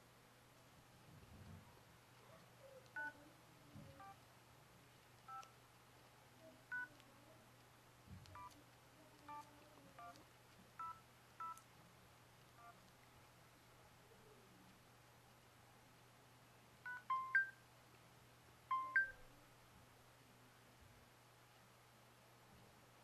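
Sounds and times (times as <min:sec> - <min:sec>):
phone keypad beeps: 0:03.0 - 0:03.2, 0:05.3 - 0:05.5, 0:08.3 - 0:08.6, 0:09.3 - 0:10.2, 0:10.8 - 0:11.6, 0:16.9 - 0:17.6, 0:18.7 - 0:19.2.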